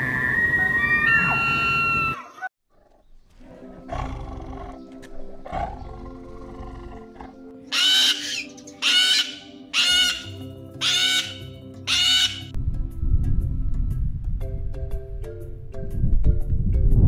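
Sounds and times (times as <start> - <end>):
tiger growling: 2.7 - 7.6
background music with held notes: 3.3 - 17.0
cockatoos screeching: 7.7 - 12.5.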